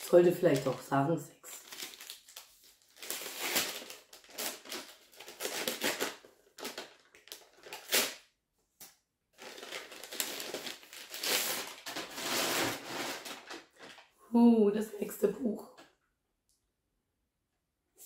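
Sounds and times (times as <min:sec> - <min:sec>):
paper bag crinkling: 0:00.0 - 0:08.2, 0:09.4 - 0:14.1.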